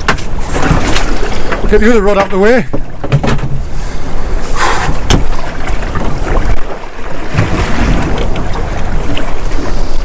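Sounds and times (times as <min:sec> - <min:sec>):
wind rumbling on microphone: 0:02.9 - 0:10.0.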